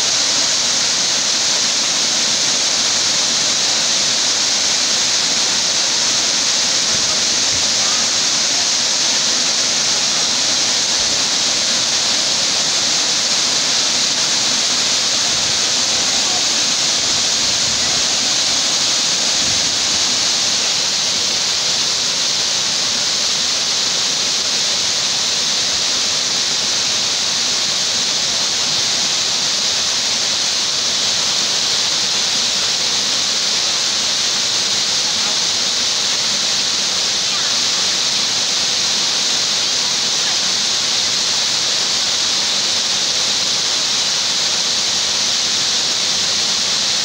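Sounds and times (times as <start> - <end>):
waterfall rushing into a pool: 0.0 - 47.0.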